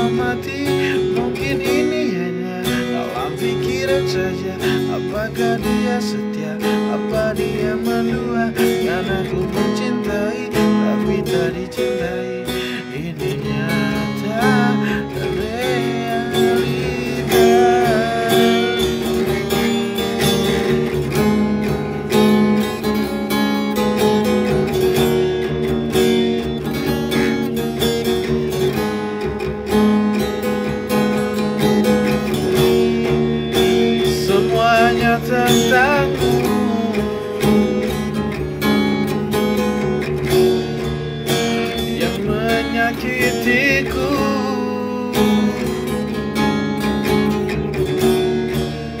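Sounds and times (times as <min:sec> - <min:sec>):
wordless vocal line: 0:00.0 - 0:22.8, 0:31.8 - 0:38.2, 0:41.3 - 0:46.4
acoustic guitar strumming: 0:00.0 - 0:49.0.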